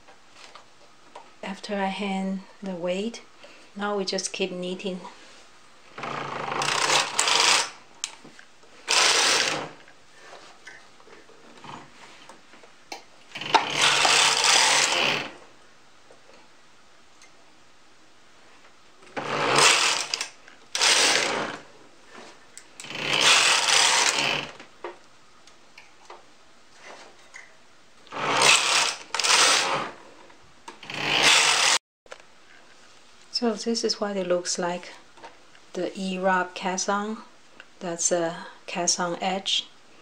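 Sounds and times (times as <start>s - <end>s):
knitting machine carriage sliding: 6.0s - 7.8s, 8.9s - 9.8s, 13.4s - 15.4s, 19.1s - 21.6s, 22.8s - 24.6s, 28.1s - 30.0s, 30.8s - 31.8s.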